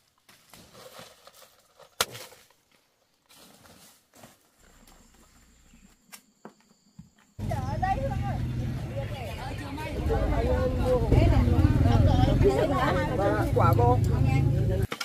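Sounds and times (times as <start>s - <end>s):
footsteps rustling through leaves: 2.8s - 5.1s.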